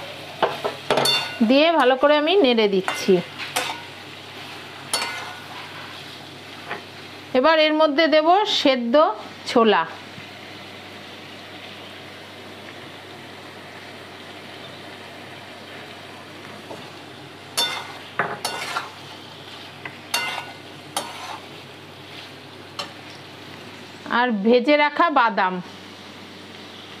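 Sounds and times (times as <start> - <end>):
vegetables sizzling in oil: 0.0 - 27.0
metal spatula scraping a pan: 2.9 - 3.9, 4.9 - 6.0, 17.6 - 19.0, 20.1 - 21.6.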